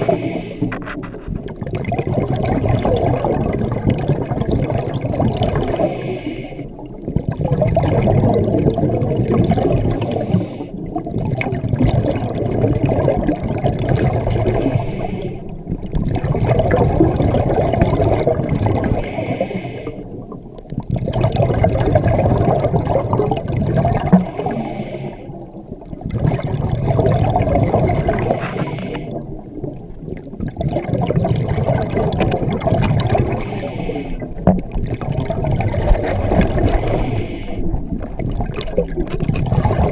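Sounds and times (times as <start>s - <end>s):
hissing regulator inhalations: 0.0s - 0.8s, 5.7s - 6.7s, 10.0s - 10.8s, 14.6s - 15.5s, 19.0s - 20.1s, 24.2s - 25.4s, 28.2s - 29.2s, 33.4s - 34.4s, 36.7s - 37.8s
gurgling exhaled bubbles: 0.0s - 39.9s.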